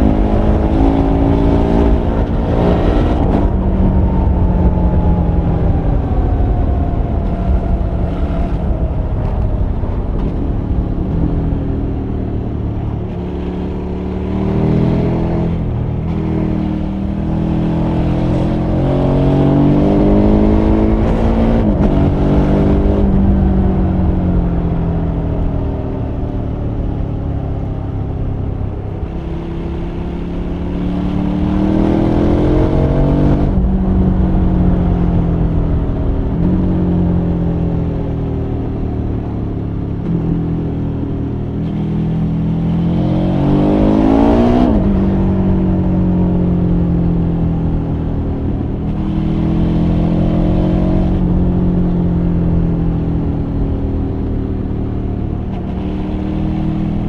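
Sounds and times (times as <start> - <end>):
wind rushing: 0.0 - 13.3
motorcycle engine at speed: 0.0 - 57.0.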